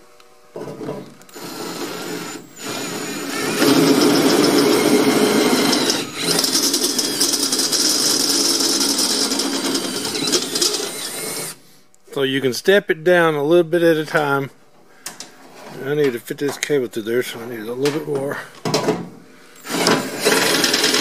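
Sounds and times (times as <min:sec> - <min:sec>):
cordless drill cutting sheet metal: 0:01.3 - 0:11.6, 0:19.6 - 0:21.0.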